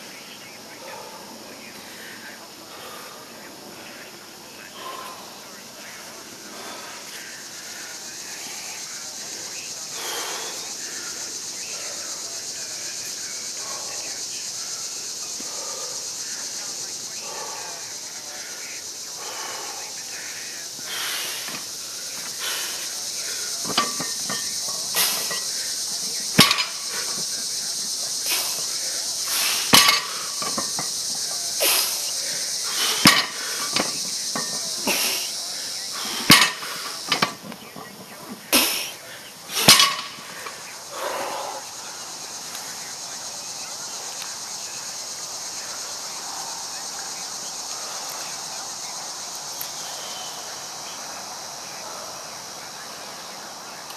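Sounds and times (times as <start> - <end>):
steady high hiss: 0.0 - 53.9
barbell plates clanking on rubber mat: 21.4 - 27.3, 29.3 - 32.0, 32.7 - 35.2, 36.0 - 38.4, 39.6 - 40.3.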